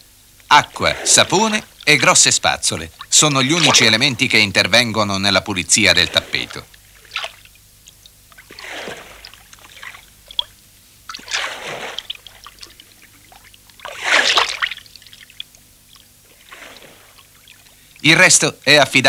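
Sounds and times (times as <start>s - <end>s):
water splashing: 0.5s - 18.3s
water trickling and dripping: 1.5s - 4.2s, 6.4s - 18.1s.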